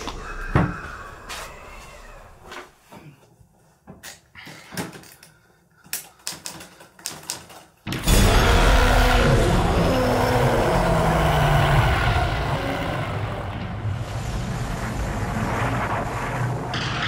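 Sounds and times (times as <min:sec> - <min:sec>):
low rumbling drone: 0:08.0 - 0:17.0.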